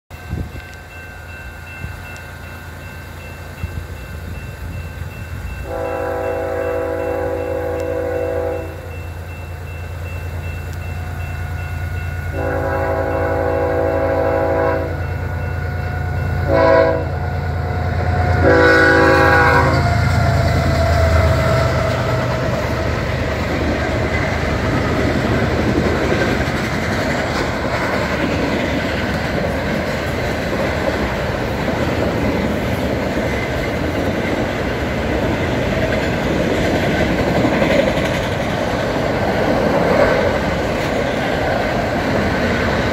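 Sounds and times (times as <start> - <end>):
diesel locomotive rumble: 0.1 - 42.9
train wheels clacking on rails: 0.1 - 42.9
locomotive air horn blasts: 5.6 - 8.9, 12.2 - 22.2.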